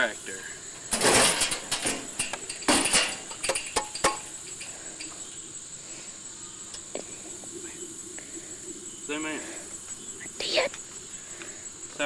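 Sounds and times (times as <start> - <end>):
sheet metal clattering: 0.9 - 5.1.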